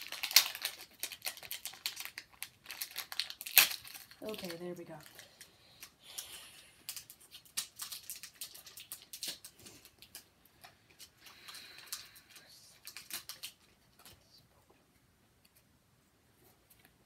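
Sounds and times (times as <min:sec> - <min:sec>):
foil wrapper crinkling: 0:00.0 - 0:10.3, 0:11.0 - 0:14.1.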